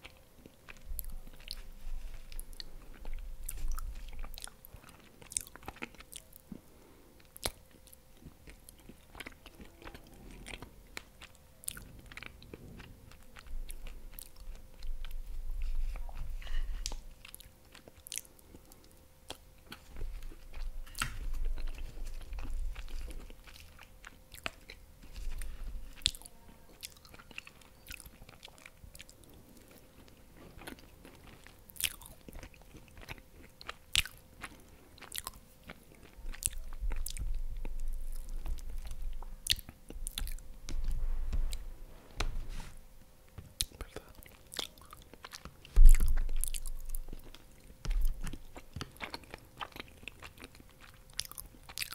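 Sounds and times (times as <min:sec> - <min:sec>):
wet chewing: 0:00.0 - 0:41.7, 0:43.3 - 0:51.9
low muffled rumble: 0:36.1 - 0:43.0, 0:45.8 - 0:47.3.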